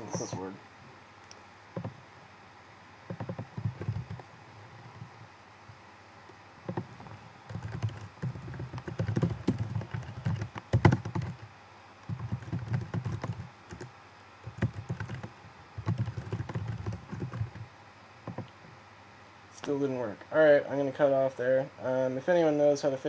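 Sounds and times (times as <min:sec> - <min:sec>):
typing on computer keyboard: 0:03.1 - 0:04.2, 0:06.7 - 0:17.6, 0:18.3 - 0:18.5.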